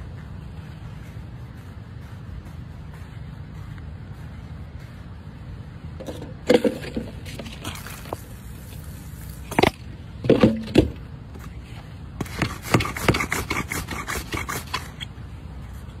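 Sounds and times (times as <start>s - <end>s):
pipe rolling with scraping clicks: 6.0s - 8.8s.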